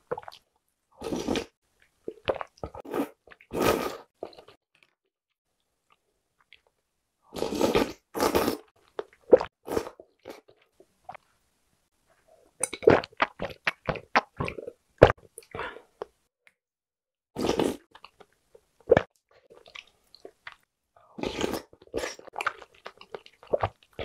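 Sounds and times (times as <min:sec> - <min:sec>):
slurping noodles: 0:02.7 - 0:04.2, 0:07.3 - 0:08.7.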